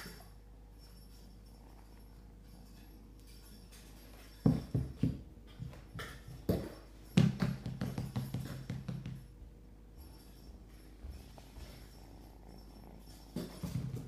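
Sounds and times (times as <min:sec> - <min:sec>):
kittens knocking and thumping: 0:03.8 - 0:09.3, 0:13.1 - 0:14.0.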